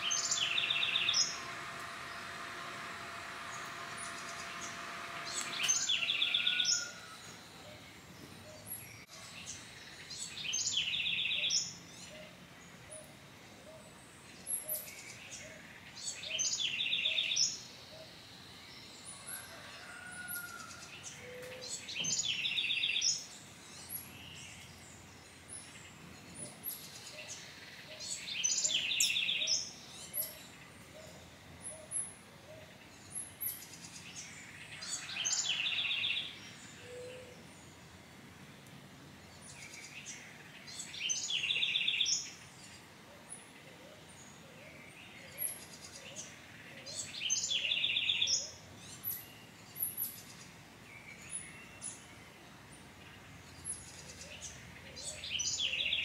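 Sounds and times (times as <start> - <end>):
bird singing repeated phrase: 0.0 - 1.6, 3.4 - 6.9.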